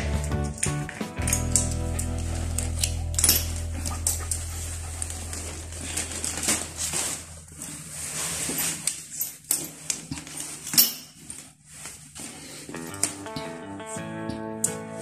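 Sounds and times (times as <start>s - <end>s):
background music: 0.0s - 5.8s, 12.7s - 15.0s.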